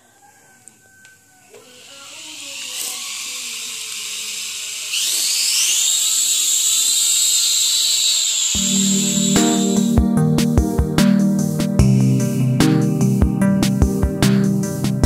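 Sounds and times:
drone motors whining: 1.4 - 10.0
background music: 8.6 - 15.0.

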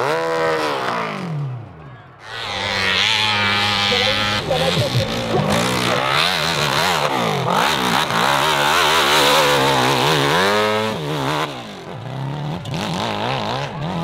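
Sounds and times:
dirt bike engine revving: 0.0 - 14.0.

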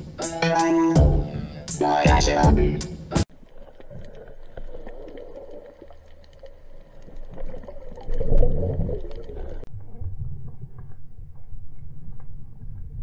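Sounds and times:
crackle of small clicks: 3.4 - 9.7.

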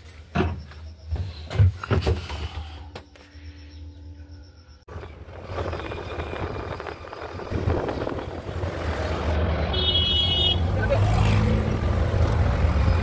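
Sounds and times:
vehicle rumble and road noise: 4.6 - 13.0
vehicle horn honking: 9.7 - 10.8.

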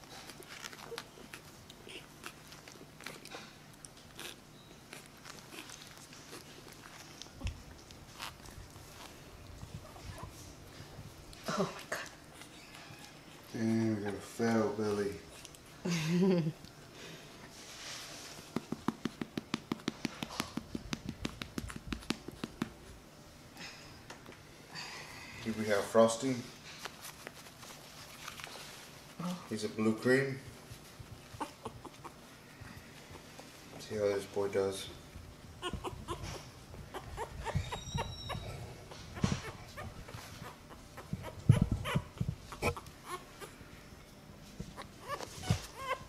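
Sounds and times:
puppy whimpering: 0.5 - 9.1, 9.7 - 10.5, 12.0 - 14.4, 31.2 - 32.5, 35.6 - 43.7, 44.6 - 46.0
hand patting puppy's back: 18.4 - 22.9.

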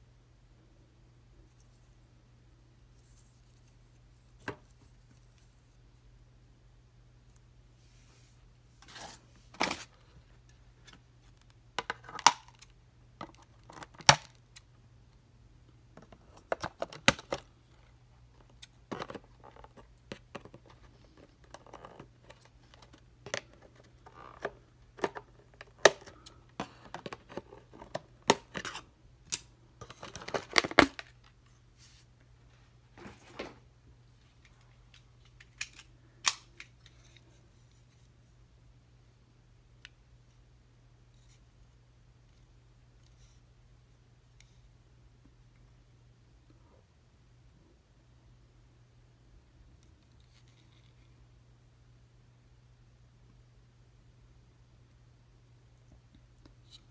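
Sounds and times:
cardboard and plastic rustling: 29.8 - 32.1.

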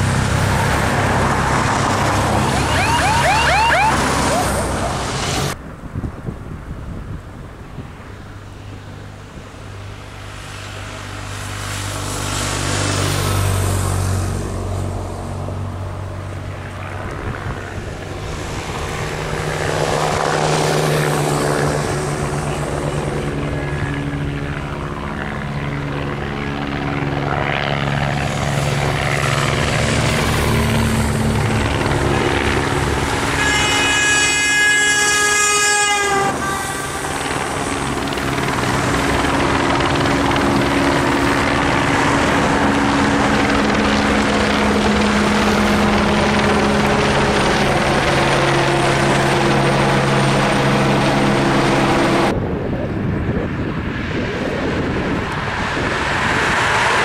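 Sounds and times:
motorbikes and cars driving past: 0.0 - 5.6, 8.5 - 57.0
vehicle horn: 33.2 - 37.8.

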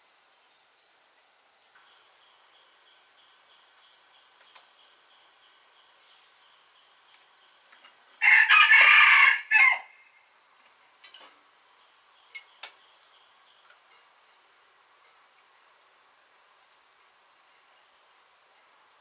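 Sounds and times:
rooster crowing: 8.2 - 10.2.

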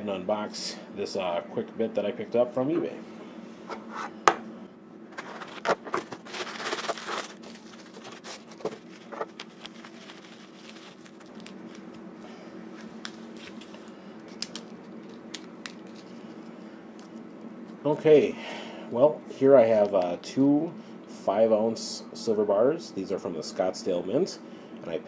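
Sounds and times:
faint steady hum: 0.0 - 25.0
cardboard box being opened: 5.1 - 10.9
packing material rustling: 5.1 - 12.0, 12.8 - 16.4.

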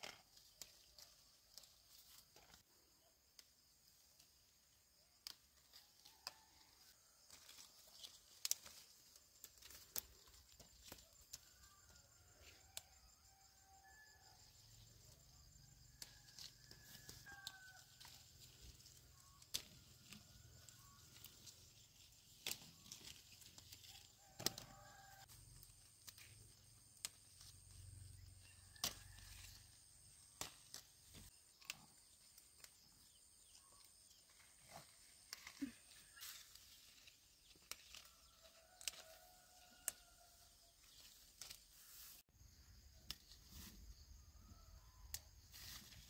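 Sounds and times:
twigs and leaves rustling: 5.1 - 13.0, 14.8 - 42.2
fruit stems snapping: 7.3 - 11.4, 19.2 - 20.2, 22.4 - 23.6, 24.4 - 24.8, 28.7 - 29.4, 30.3 - 32.8, 38.8 - 39.2, 41.4 - 41.6.

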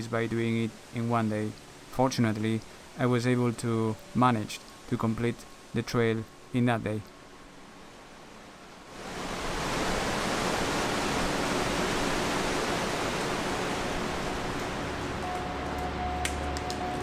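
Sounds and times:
waterfall rushing: 8.9 - 17.0.

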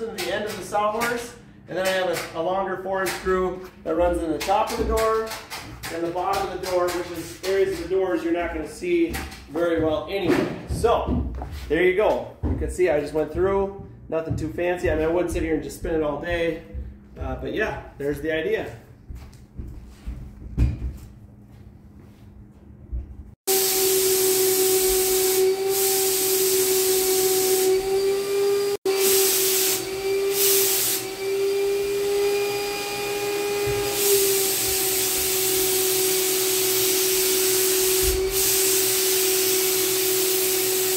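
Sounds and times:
air supply whine: 0.0 - 40.9
spray gun hissing: 23.5 - 28.3, 28.9 - 32.1, 32.8 - 40.9.

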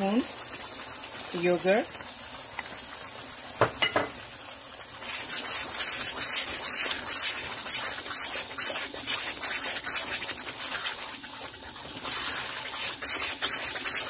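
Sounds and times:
spices sizzling in hot oil: 0.0 - 14.0
wooden spoon stirring: 5.0 - 14.0.

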